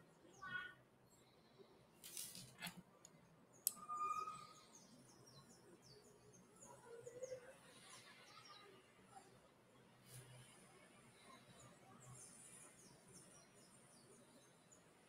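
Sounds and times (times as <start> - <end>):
soft rustle: 2.0 - 2.8
faint high bird chirps: 3.5 - 9.3.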